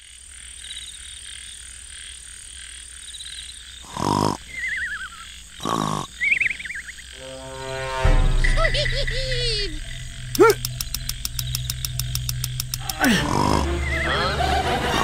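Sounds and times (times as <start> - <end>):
frogs and insects chirping: 0.0 - 15.0
cartoon snoring: 3.8 - 4.6, 5.6 - 6.3, 12.8 - 14.4
wavering whistle: 4.5 - 5.4, 6.2 - 15.0.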